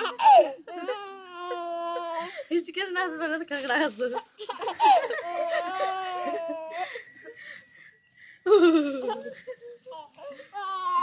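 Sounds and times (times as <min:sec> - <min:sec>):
baby laughing: 0:00.0 - 0:02.4, 0:04.4 - 0:06.9.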